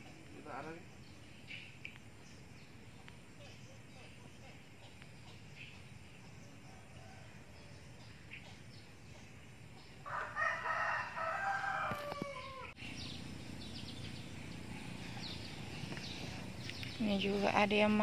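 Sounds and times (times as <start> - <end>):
rooster crowing: 10.0 - 12.8.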